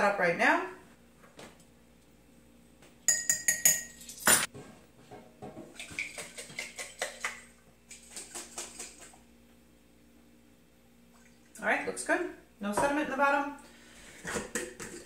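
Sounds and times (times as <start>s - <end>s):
metal spoon clinking ceramic dish: 3.1s - 4.5s.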